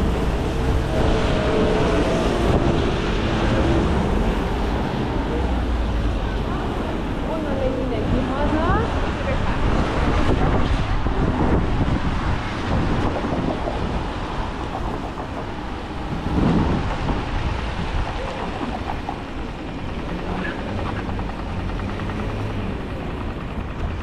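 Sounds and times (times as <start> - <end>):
low engine-like hum: 0.0 - 24.0
traffic hiss on wet streets: 0.0 - 24.0
wind rumbling on microphone: 0.0 - 24.0.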